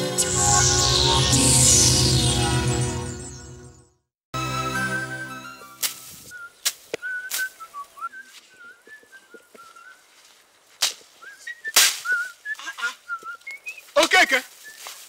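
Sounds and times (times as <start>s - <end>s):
person whistling a tune: 4.6s - 10.0s, 11.2s - 13.8s
machete chopping bush: 11.7s - 12.2s.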